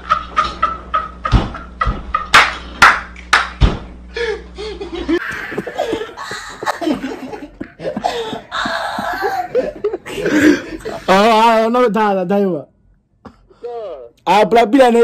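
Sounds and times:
people laughing hard: 0.0s - 2.4s, 4.2s - 11.1s
low background hum: 0.0s - 15.0s.

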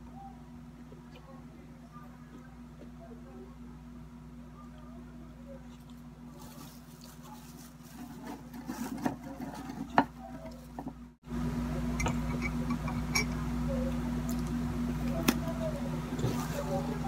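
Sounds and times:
steady low hum: 0.0s - 17.0s
plastic wrapping crinkling: 6.3s - 8.2s.

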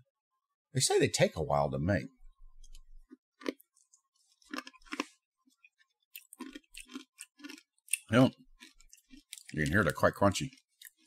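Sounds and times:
hard candy crunching: 2.6s - 11.0s.

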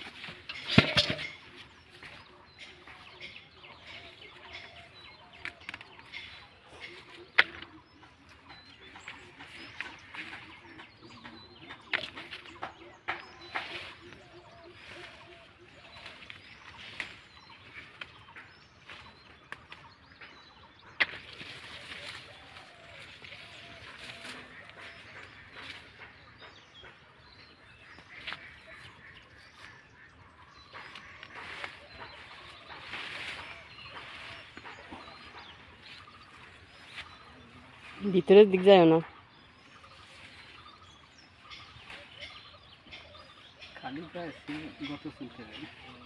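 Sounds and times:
faint birds chirping: 0.0s - 46.0s
leaves rustling: 13.6s - 19.2s, 21.2s - 25.9s, 30.8s - 39.0s.

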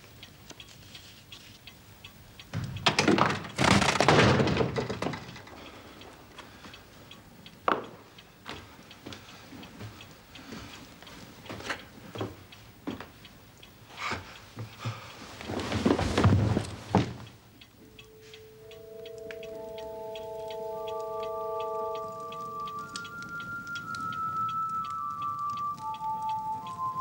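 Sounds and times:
clock ticking: 0.0s - 27.0s
door flung open clattering: 2.6s - 5.6s.

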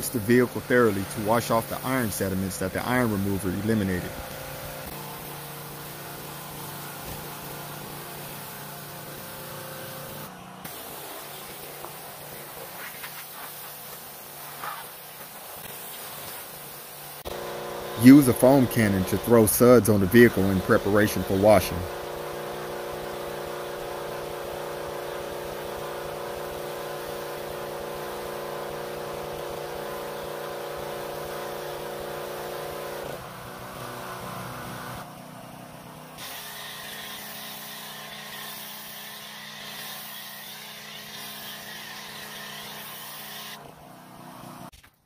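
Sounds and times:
foam cannon spray hiss: 0.0s - 33.1s
pressure washer motor hum: 0.0s - 44.7s.

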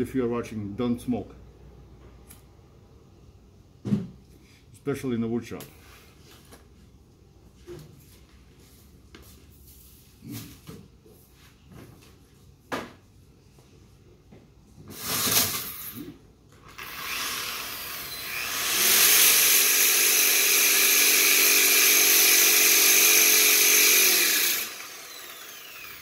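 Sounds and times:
motor humming: 23.2s - 26.0s.

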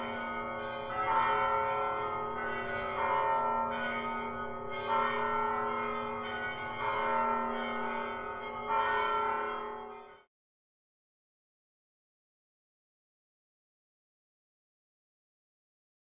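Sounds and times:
church bell ringing: 0.0s - 10.3s.

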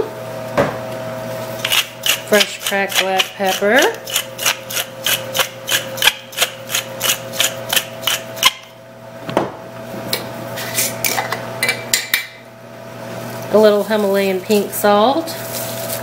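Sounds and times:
pepper mill grinding clicks: 1.6s - 8.6s.

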